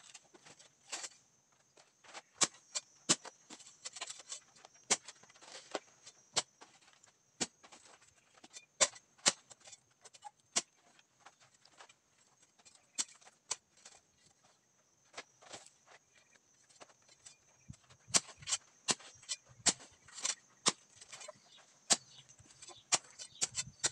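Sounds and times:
hoe chopping into soil: 2.0 - 12.0, 12.6 - 14.1, 17.1 - 23.9.

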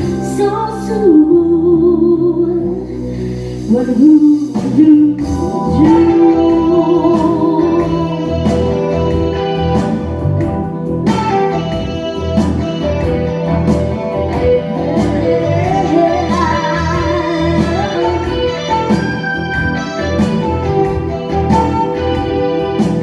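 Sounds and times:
person singing: 0.0 - 10.2, 12.8 - 19.5
live rock band: 0.0 - 23.0.

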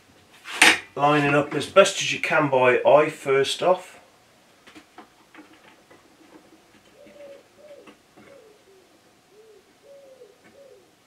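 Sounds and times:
pigeon cooing: 6.3 - 11.0.

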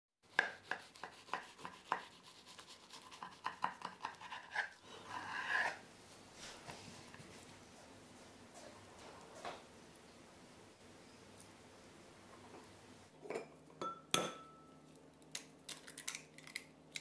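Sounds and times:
knife crackling through crisp food: 0.3 - 5.8
knife scraping on board: 0.3 - 5.8.

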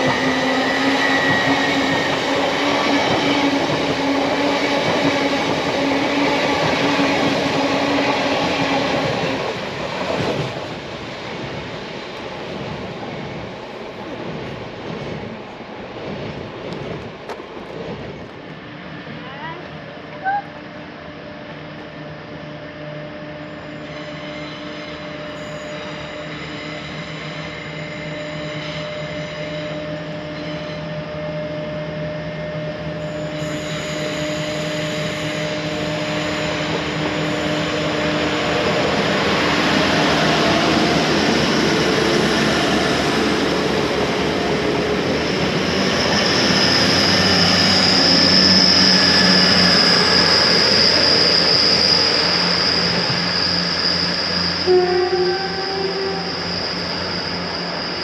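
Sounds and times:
high-pitched wheel squeal: 0.0 - 3.4, 23.6 - 43.6, 45.0 - 58.0
train wheels on rails: 0.0 - 20.3, 23.4 - 58.0.

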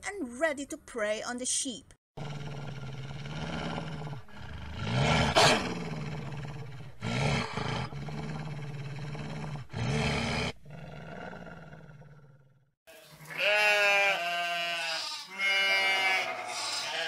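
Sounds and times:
wolves growling and snarling: 2.2 - 12.8.

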